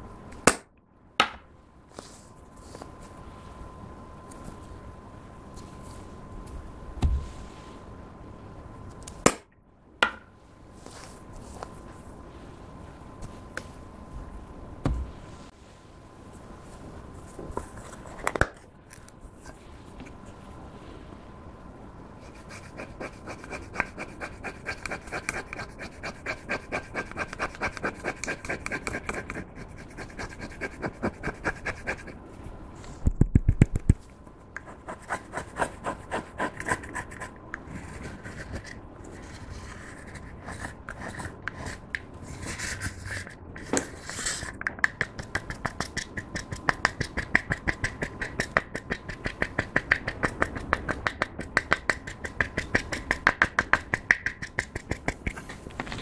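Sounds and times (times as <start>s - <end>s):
spatula scraping powder: 22.2s - 32.2s, 34.6s - 44.5s.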